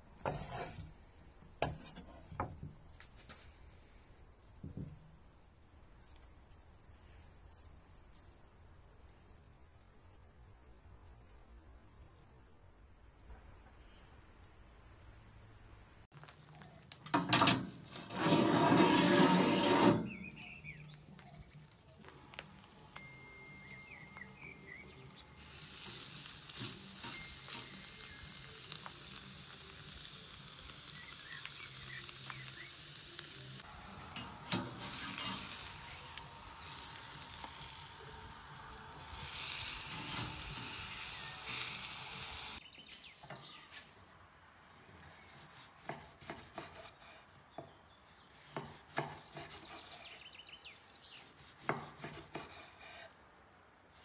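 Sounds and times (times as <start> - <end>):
steak sizzling on a grill: 23.6 - 42.6.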